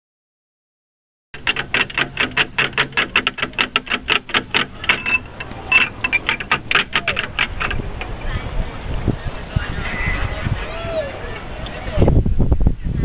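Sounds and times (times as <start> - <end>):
metal chime tubes clacking: 4.8 - 7.8.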